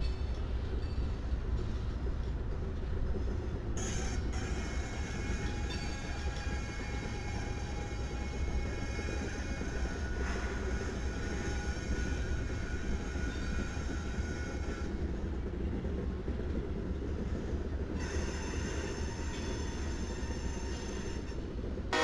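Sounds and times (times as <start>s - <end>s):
freight train rumbling by: 0.0s - 22.0s
thin wheel squeal: 3.8s - 15.0s, 18.0s - 21.4s.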